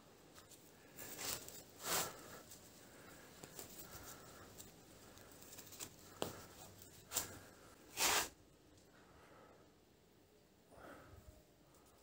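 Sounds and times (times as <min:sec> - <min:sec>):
rustling of fishing net: 0:00.4 - 0:08.3.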